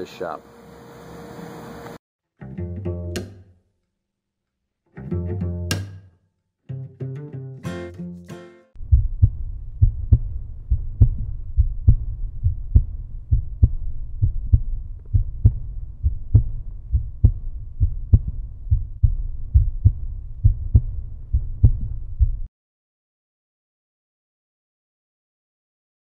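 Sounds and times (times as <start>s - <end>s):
deep thumping bass beat: 8.8s - 22.5s.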